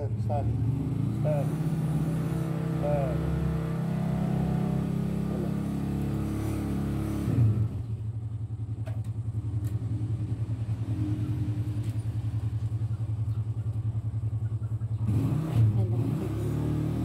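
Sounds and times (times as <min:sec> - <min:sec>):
motor engine running: 0:00.0 - 0:17.0.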